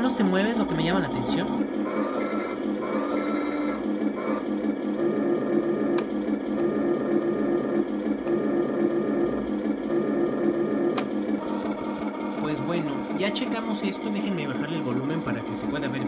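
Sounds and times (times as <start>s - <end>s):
toy tank engine rumble from speaker: 0.0s - 16.0s.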